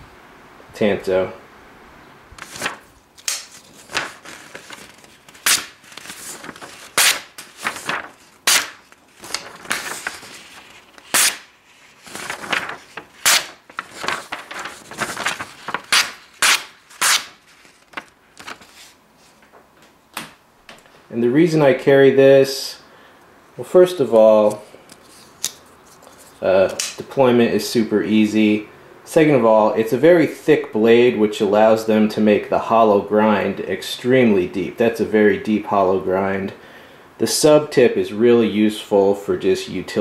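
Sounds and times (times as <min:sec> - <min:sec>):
knife slicing paper: 0:02.4 - 0:19.0.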